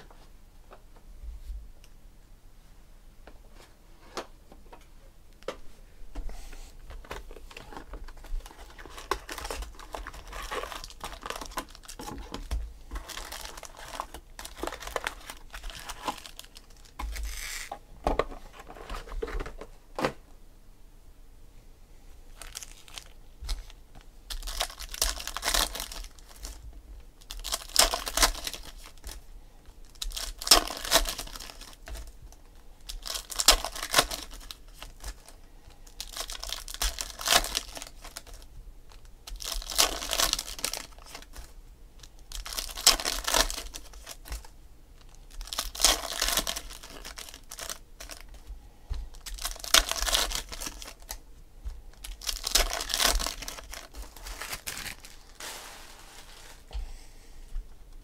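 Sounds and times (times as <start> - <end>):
foil wrappers crinkling and ripping: 7.1 - 17.7, 22.3 - 26.6, 27.2 - 32.2, 32.8 - 48.5, 49.1 - 51.2, 51.9 - 56.7.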